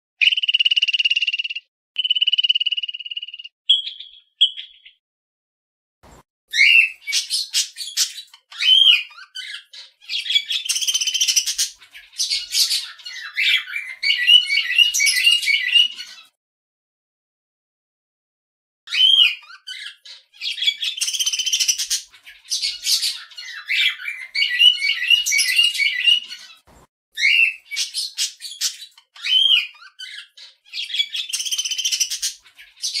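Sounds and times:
birds squawking and chirping: 0:06.5 - 0:16.4, 0:18.9 - 0:33.0.

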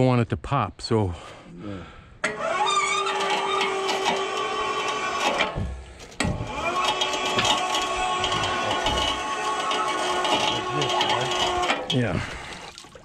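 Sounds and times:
electric winch motor whining: 0:02.2 - 0:12.5.

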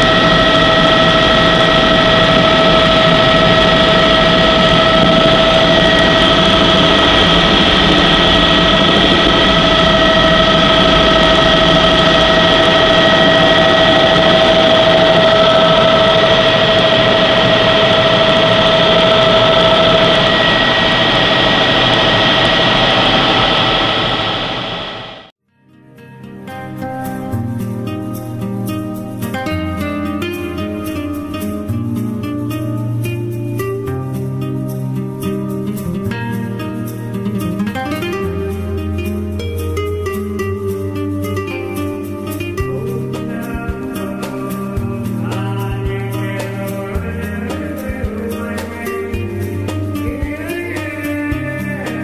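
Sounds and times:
helicopter engine and rotor rush: 0:00.0 - 0:25.3
helicopter whine: 0:00.0 - 0:25.3, 0:26.8 - 0:52.0.

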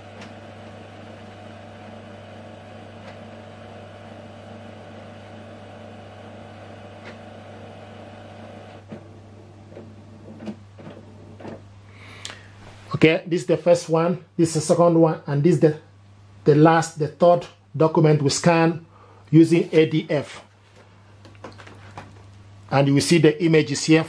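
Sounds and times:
document feeder motor hum: 0:00.0 - 0:12.1.

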